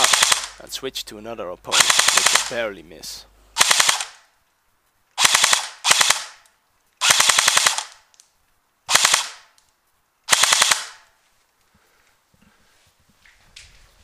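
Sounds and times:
airsoft rifle full-auto bursts: 0.0s - 0.6s, 1.7s - 2.6s, 3.6s - 4.2s, 5.2s - 6.4s, 7.0s - 8.0s, 8.9s - 9.5s, 10.3s - 11.0s.

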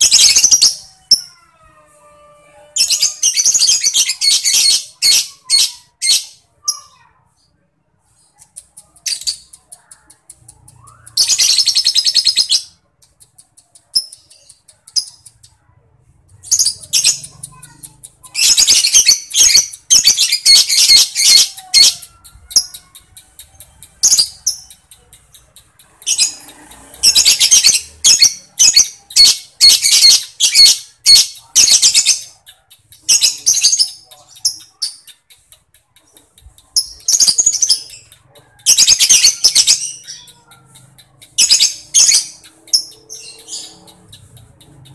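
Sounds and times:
bird chirps: 16.4s - 44.9s
lovebird chattering: 16.4s - 44.9s.

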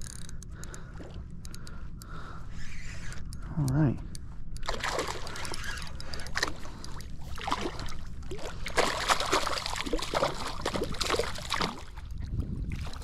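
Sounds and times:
water splashing and sloshing: 4.6s - 13.0s.

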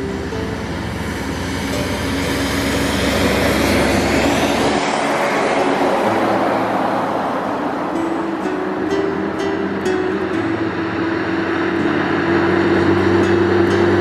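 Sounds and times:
heavy truck engine and tyres: 0.0s - 14.0s.

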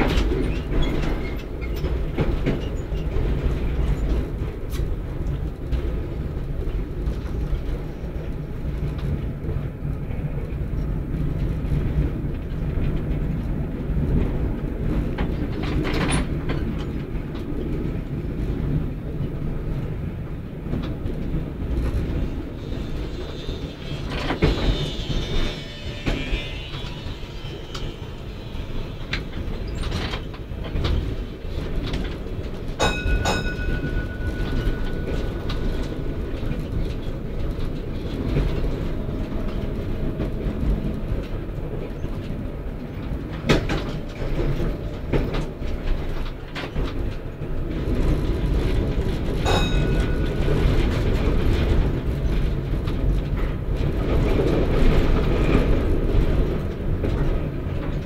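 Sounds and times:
tram wheels rumbling on rails: 0.0s - 58.0s
high ringing tones: 23.2s - 29.6s, 32.9s - 36.6s.

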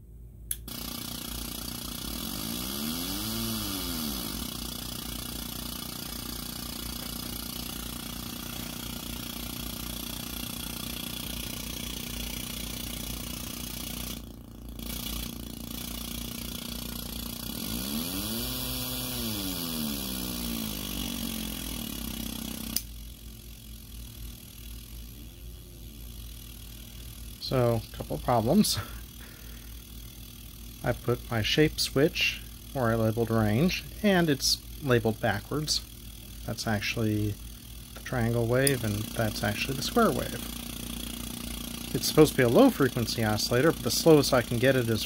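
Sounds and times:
click: 0.5s - 0.7s
harsh synth buzz through amp: 0.6s - 45.0s.

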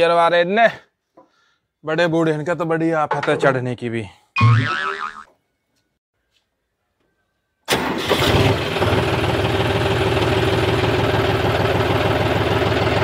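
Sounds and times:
diesel tractor engine starting and idling: 7.7s - 13.0s.

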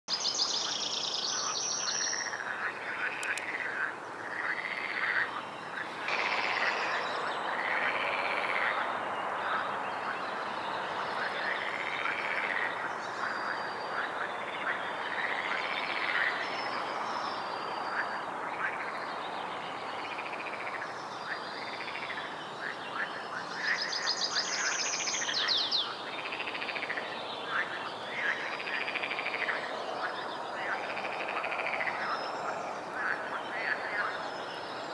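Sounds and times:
frogs croaking in chorus: 0.3s - 34.9s
nearer frog croaking: 2.2s - 8.9s.

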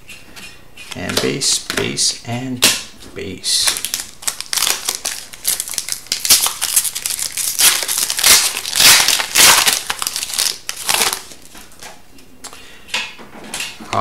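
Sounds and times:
foil wrapper crinkling: 3.6s - 11.9s.

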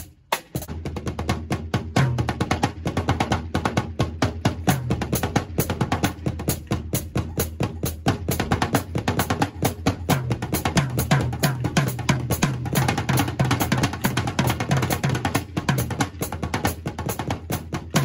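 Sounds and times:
bass drum: 0.0s - 18.0s
snare and toms played fast: 0.0s - 18.0s.

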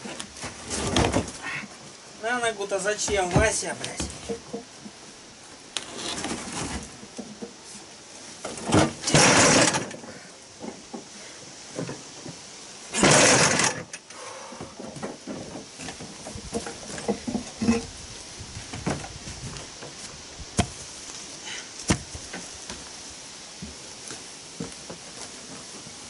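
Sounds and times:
stone slab scraping thud: 20.6s - 20.8s, 21.9s - 22.2s
sharp knocks: 21.9s - 22.2s
footsteps on trailer floor: 23.6s - 26.0s.

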